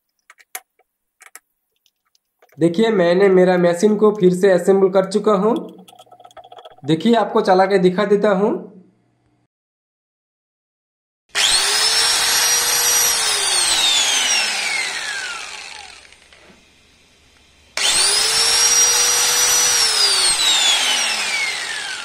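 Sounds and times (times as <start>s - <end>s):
angle grinder motor whining: 11.3s - 22.0s.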